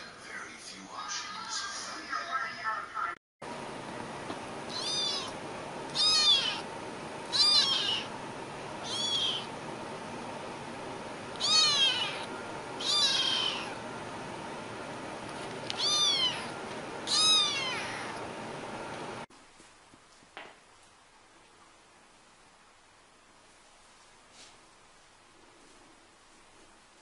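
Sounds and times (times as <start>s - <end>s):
kitten meowing: 4.7s - 6.6s, 7.3s - 8.1s, 8.8s - 9.5s, 11.4s - 13.8s, 15.7s - 16.5s, 17.1s - 18.2s.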